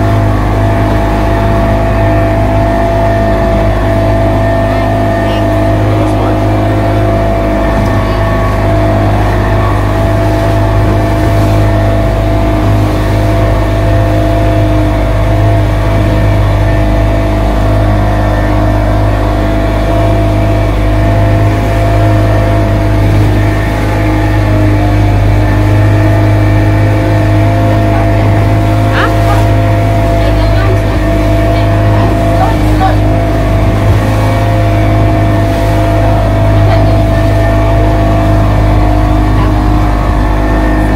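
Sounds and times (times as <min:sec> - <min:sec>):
motorboat engine droning: 0:00.0 - 0:40.9.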